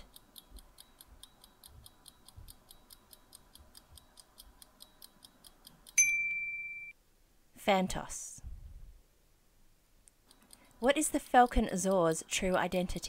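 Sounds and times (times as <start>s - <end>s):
timer ticking: 0.0s - 6.9s, 10.2s - 13.0s
bright ding: 6.0s - 7.0s.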